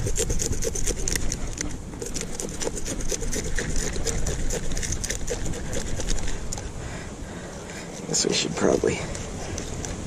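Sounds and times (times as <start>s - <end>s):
knife scraping fish scales: 0.0s - 6.7s, 7.5s - 10.0s.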